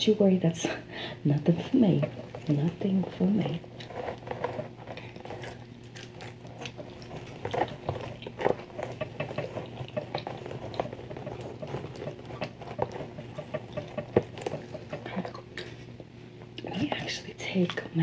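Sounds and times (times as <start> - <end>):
fingers rustling through hair: 1.4 - 17.7
gum chewing: 3.5 - 16.7.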